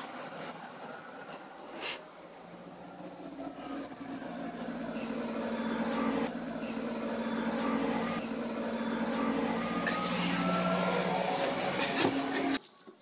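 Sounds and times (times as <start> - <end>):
vehicle engine humming: 0.0 - 12.6
faint rising whine: 2.3 - 12.6.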